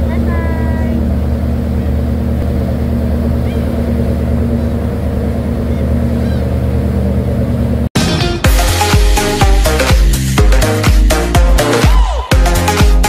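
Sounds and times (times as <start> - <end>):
churning wake rushing: 0.0 - 13.0
ferry engine running: 0.0 - 13.0
seagull calls: 3.4 - 3.8, 5.6 - 6.8.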